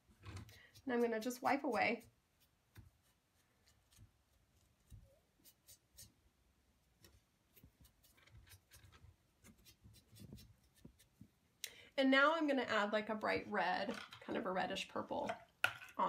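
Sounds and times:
sponge wiping clay: 0.0s - 6.2s, 6.9s - 11.4s.

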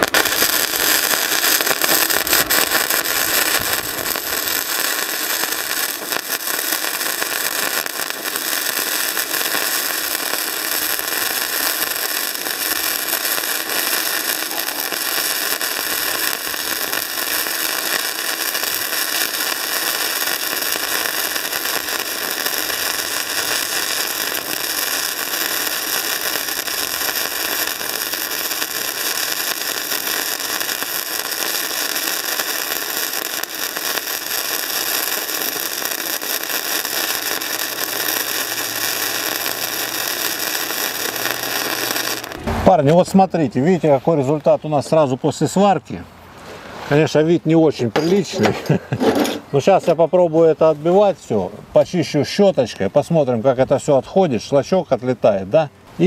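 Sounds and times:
welding arc crackling and hissing: 0.0s - 43.3s.

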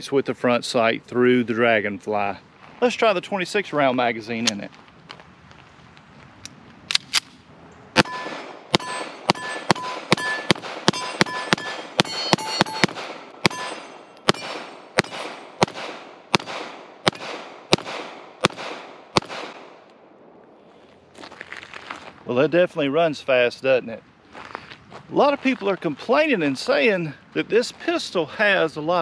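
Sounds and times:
steel targets clanging: 8.0s - 15.6s
pistol shots: 8.0s - 19.9s.

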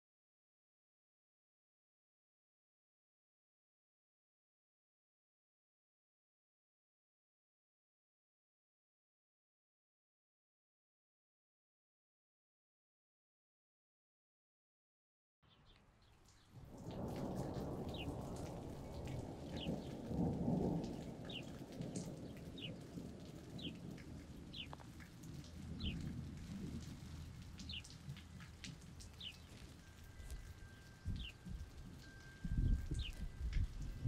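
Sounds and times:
rain falling: 16.0s - 34.0s
thunder rumbling: 16.6s - 34.0s.

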